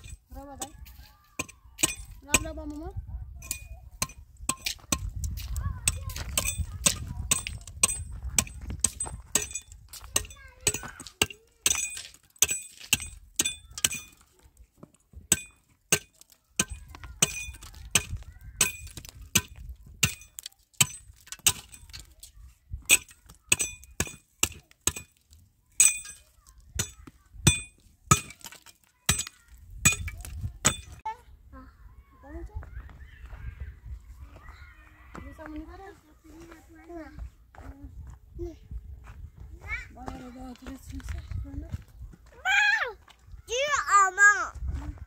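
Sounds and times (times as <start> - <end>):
hammer striking concrete blocks: 3.4 - 5.2, 5.8 - 14.3, 15.2 - 22.1, 22.9 - 31.0.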